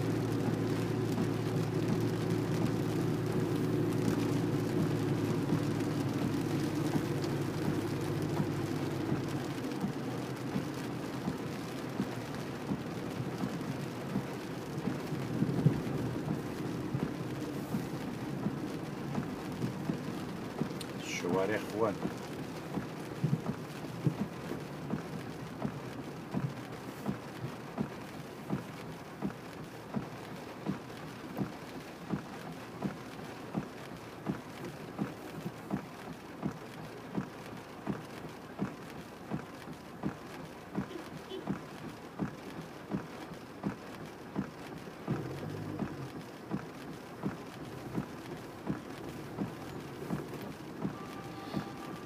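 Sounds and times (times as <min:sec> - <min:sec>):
low engine hum: 0:00.0 - 0:52.0
rain on car: 0:00.0 - 0:52.0
road noise: 0:00.0 - 0:52.0
regular ticking knock: 0:41.5 - 0:52.0.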